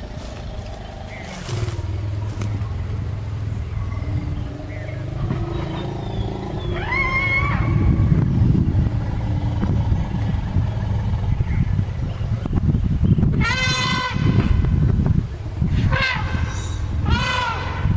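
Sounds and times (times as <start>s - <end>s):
dust rustling and thuds: 0.0s - 2.7s
low rumble: 0.0s - 17.9s.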